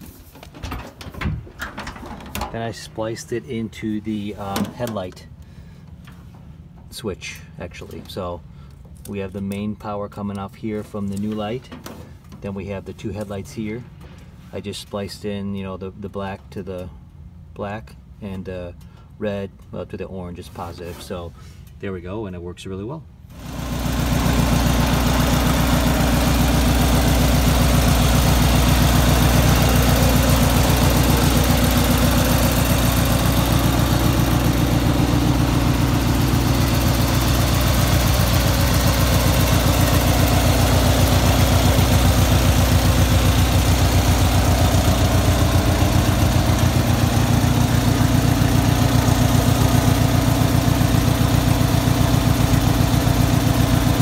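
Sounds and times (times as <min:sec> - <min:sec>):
mower engine idling: 0:23.3 - 0:54.0.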